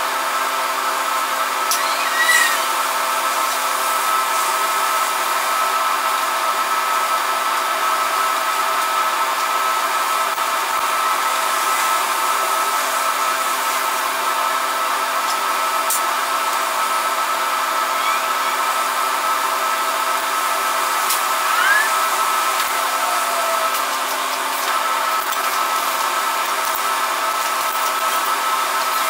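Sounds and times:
welding torch flame hissing: 0.6 - 29.0.

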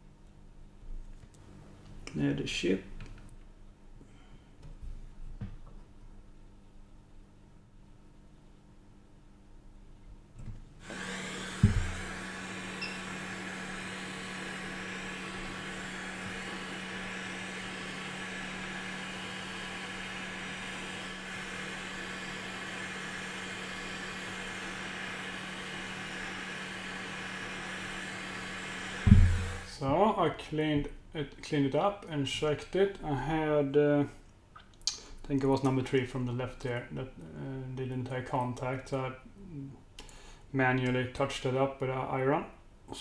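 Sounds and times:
hot air gun blowing: 10.8 - 20.4, 29.0 - 29.7
sharp knock: 29.1 - 29.5.

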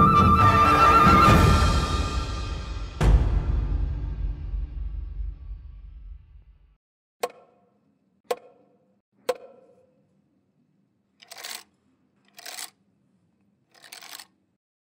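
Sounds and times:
stick knocking wooden instrument: 7.2 - 7.7, 8.3 - 9.9.

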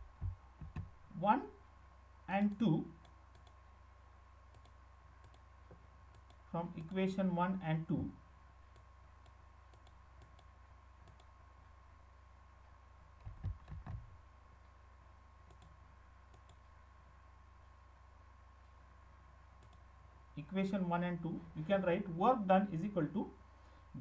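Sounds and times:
faint steady hum: 0.0 - 24.0
computer mouse clicks: 2.4 - 3.6, 4.5 - 5.5, 6.1 - 7.0, 8.7 - 11.3, 15.4 - 16.7, 19.6 - 19.9.

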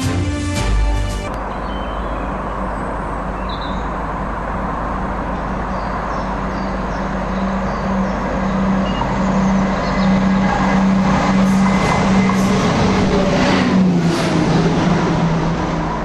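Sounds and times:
diesel train approaching: 0.0 - 16.0.

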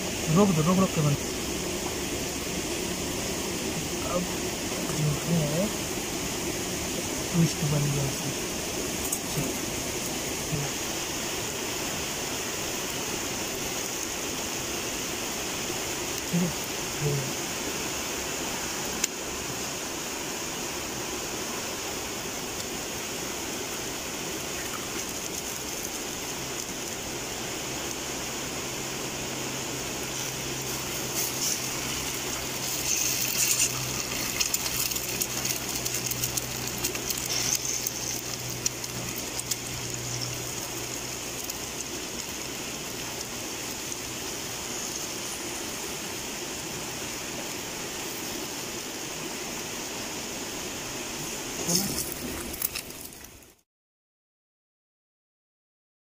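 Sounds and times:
egg frying and crackling: 8.6 - 16.3, 22.5 - 28.2, 29.7 - 45.9, 51.6 - 53.6
flatbread sizzling in oil: 29.8 - 46.2.

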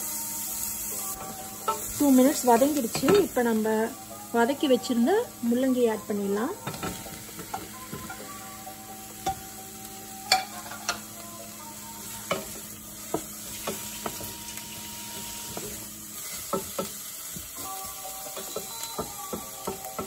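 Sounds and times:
vegetables sizzling in oil: 0.0 - 20.0
spoon knocking against pan: 18.3 - 20.0.

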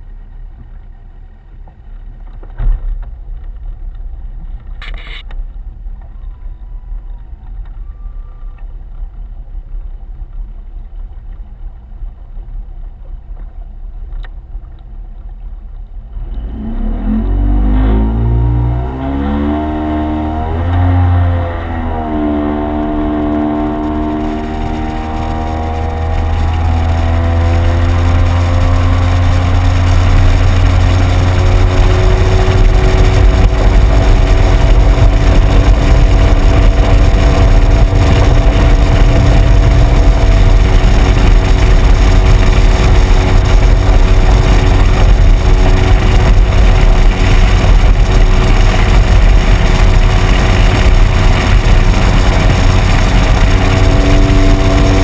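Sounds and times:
speedboat engine: 0.0 - 55.0
rush of wind and water: 16.0 - 55.0.

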